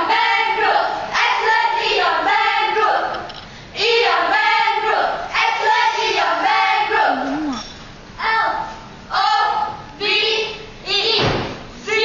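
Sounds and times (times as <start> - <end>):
cheerleaders chanting in unison: 0.0 - 7.6, 8.2 - 11.2.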